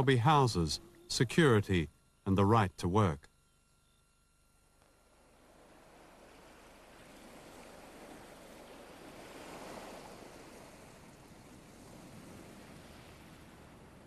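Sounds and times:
ocean waves breaking: 5.4 - 14.0.

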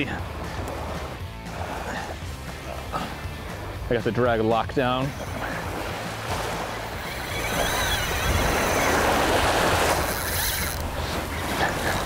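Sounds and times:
waves washing up a beach: 4.6 - 12.0.

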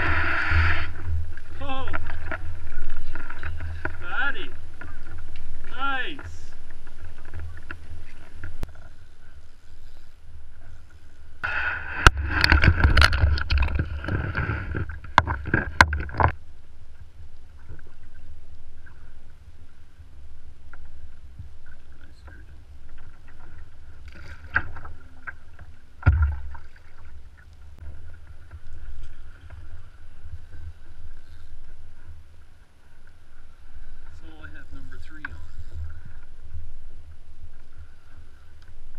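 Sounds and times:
water and handling noises: 0.0 - 19.9.

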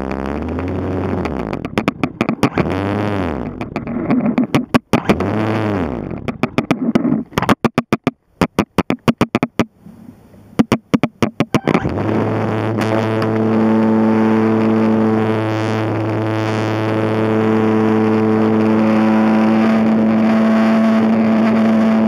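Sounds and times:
rapid clicks: 0.0 - 5.3, 6.0 - 9.7
model aircraft motor buzzing: 0.0 - 6.6, 11.6 - 22.0.

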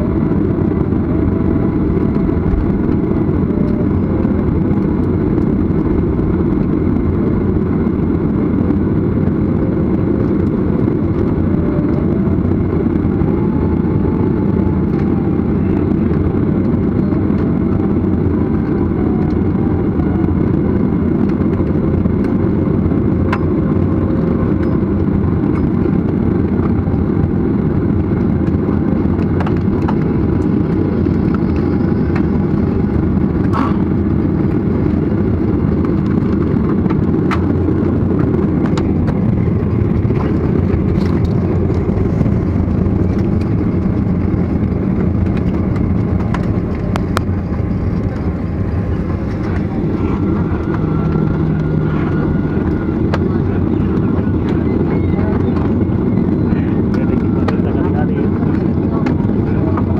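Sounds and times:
jet engines rumbling in cabin: 0.0 - 59.9.

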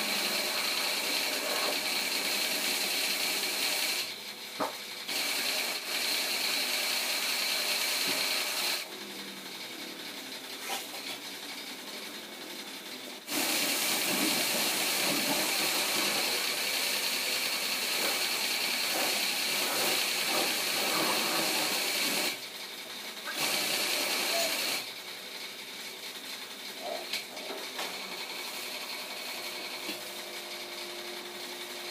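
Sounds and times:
car wash jet spraying: 13.3 - 22.4.

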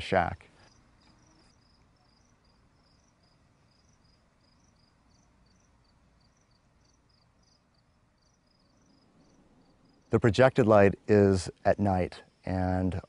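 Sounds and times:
high-pitched insect chirps: 0.6 - 10.1.

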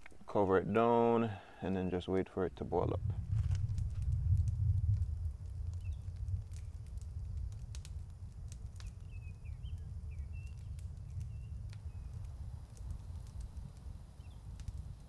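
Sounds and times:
twigs crackling in fire: 0.0 - 15.0
low steady rumble: 2.6 - 8.6.

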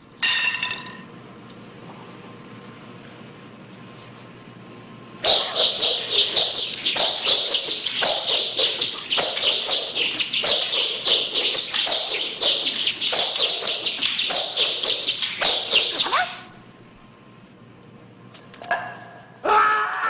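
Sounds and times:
nunchaku whistling swishes: 5.2 - 16.6.

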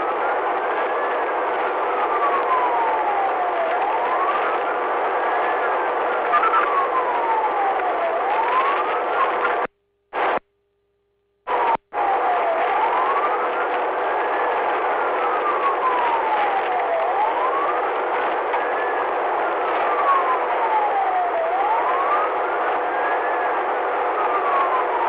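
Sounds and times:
police siren wailing: 0.0 - 10.4, 11.5 - 25.0.

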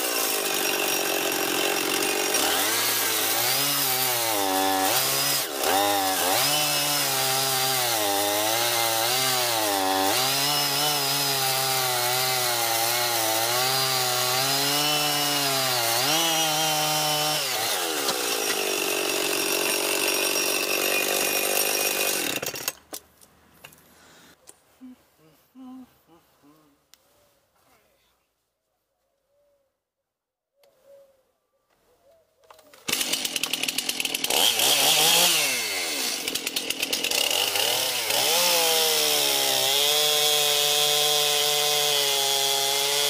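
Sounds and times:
chainsaw cutting log: 0.0 - 23.0, 32.8 - 43.0.

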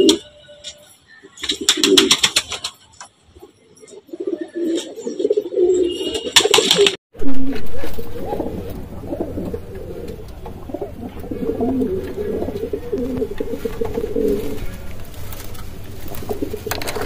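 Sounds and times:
pigeons cooing: 3.9 - 5.8, 7.6 - 17.0.

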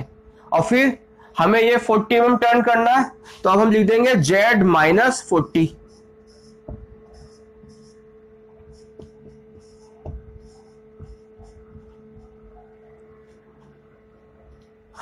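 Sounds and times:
electrical hum: 0.0 - 15.0
marker squeaking on whiteboard: 4.8 - 15.0
pen tapping on board: 6.4 - 12.8.

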